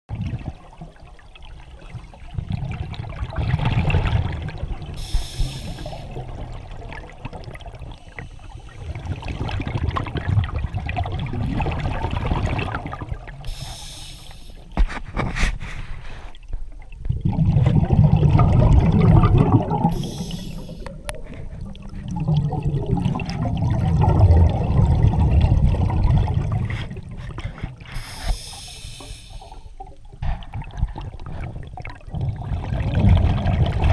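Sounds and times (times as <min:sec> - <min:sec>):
regulator bubbling exhalations: 0:02.3 - 0:16.3, 0:17.0 - 0:33.9
regulator inhalation hiss: 0:05.0 - 0:06.2, 0:13.5 - 0:14.8, 0:19.9 - 0:21.0, 0:27.9 - 0:29.8.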